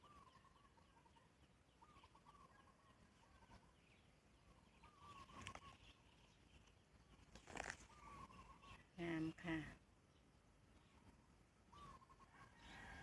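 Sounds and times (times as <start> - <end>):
faint warbling bird calls: 0.0 - 13.0
leaves rustling: 7.3 - 8.4.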